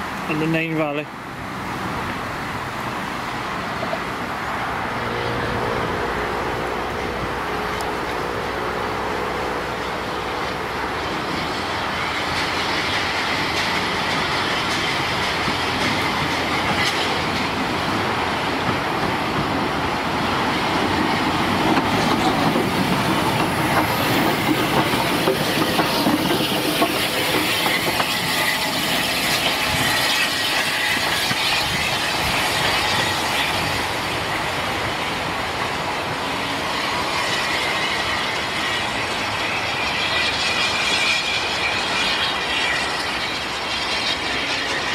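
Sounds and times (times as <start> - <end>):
steam locomotive running past: 0.0 - 44.9
wheels clattering over rail joints: 6.1 - 44.9.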